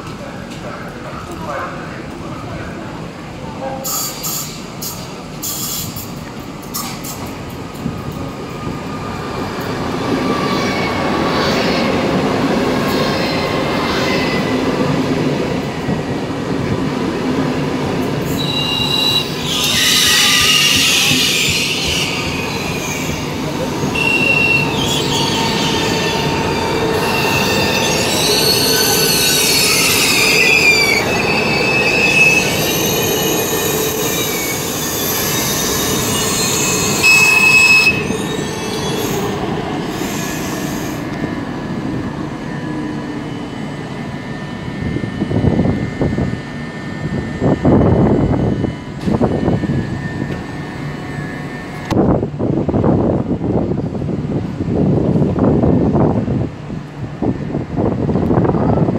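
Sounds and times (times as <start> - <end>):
electric train rumbling: 0.0 - 58.9
train wheels squealing: 3.8 - 6.1, 18.2 - 41.1.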